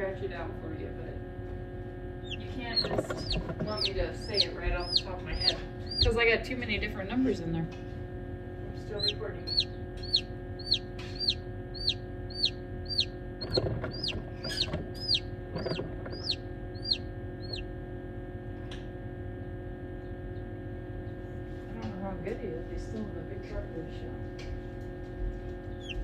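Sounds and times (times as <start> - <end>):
steady hum: 0.0 - 26.0
chick peeping: 2.2 - 6.2, 9.0 - 17.6, 25.7 - 26.0.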